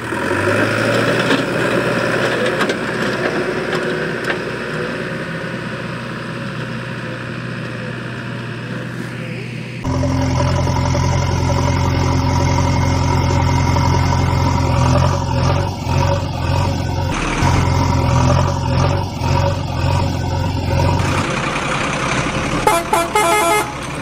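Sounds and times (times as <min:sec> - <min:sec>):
heavy vehicle engine running: 0:00.0 - 0:24.0
short horn toots: 0:22.6 - 0:23.9.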